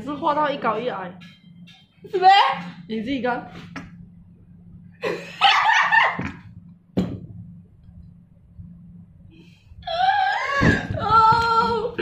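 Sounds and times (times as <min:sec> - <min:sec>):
woman laughing squeal: 0:05.0 - 0:06.2.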